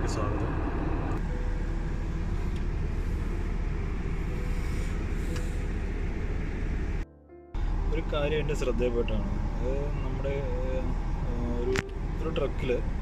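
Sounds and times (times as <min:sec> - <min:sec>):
road vehicle rumble: 0:00.0 - 0:13.0.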